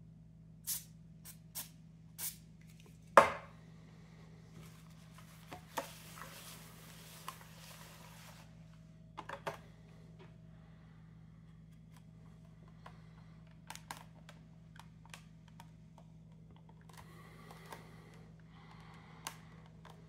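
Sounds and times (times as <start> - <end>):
aerosol spray can hissing: 0.7 - 2.4
soft cloth rubbing: 4.6 - 8.6.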